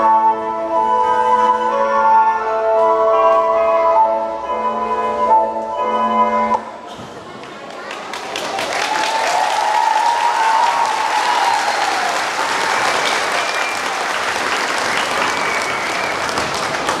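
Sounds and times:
crowd cheering: 0:07.2 - 0:17.0
audience applauding: 0:07.3 - 0:17.0
short whistles: 0:14.8 - 0:16.4.

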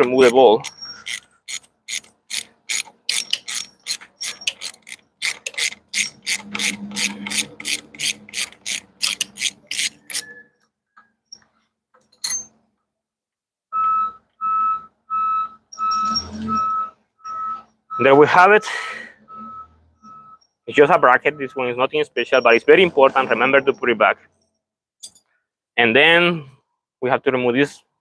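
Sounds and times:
ratchet wrench clicking rapidly: 0:00.0 - 0:10.3
vehicle reversing alarm beeping: 0:13.8 - 0:24.0.

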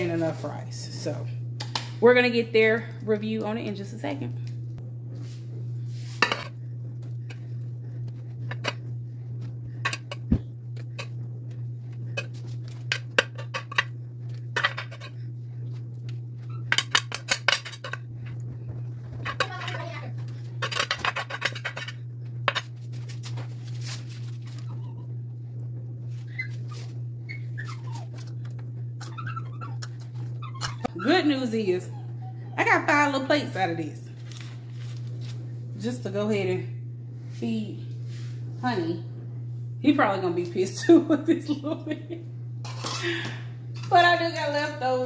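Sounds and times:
steady low hum: 0:00.0 - 0:45.0.

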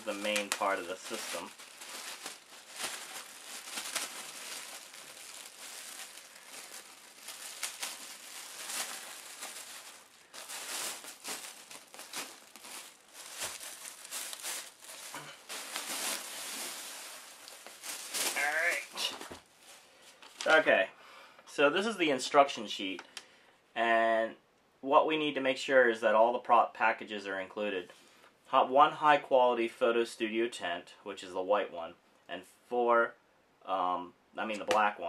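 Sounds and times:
plastic bag crinkling: 0:00.0 - 0:20.6.

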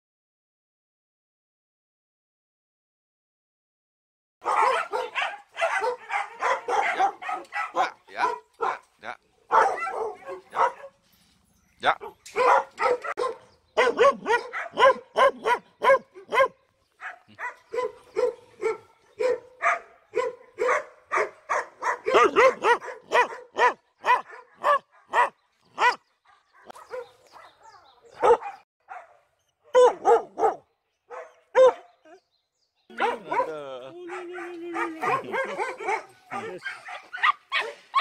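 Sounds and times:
dogs barking and yipping: 0:04.4 - 0:32.2, 0:32.9 - 0:38.0.

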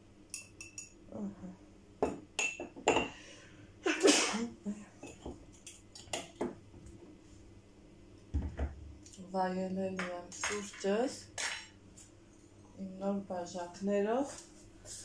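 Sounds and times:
cups and dishes clinking: 0:02.0 - 0:03.2, 0:05.0 - 0:05.4, 0:10.0 - 0:11.8
loud sneeze: 0:03.8 - 0:04.6.

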